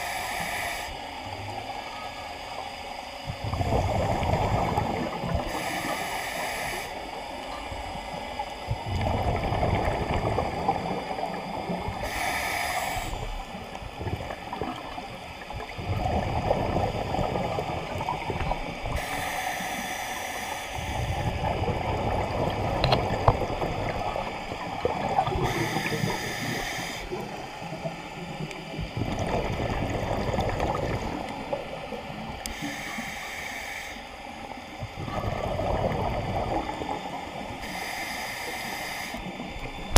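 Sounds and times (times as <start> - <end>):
regulator inhale hiss: 0.0 - 1.3, 3.3 - 7.4, 10.4 - 14.0, 18.8 - 28.9, 32.2 - 34.9, 36.6 - 39.9
gurgling exhaled bubbles: 3.2 - 5.6, 8.6 - 12.2, 12.9 - 19.2, 20.8 - 32.6, 34.7 - 37.7.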